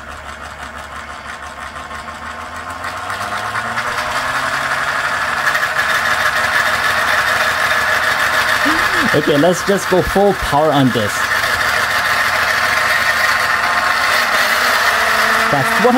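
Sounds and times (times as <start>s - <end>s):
impeller whirring: 3.8s - 15.9s.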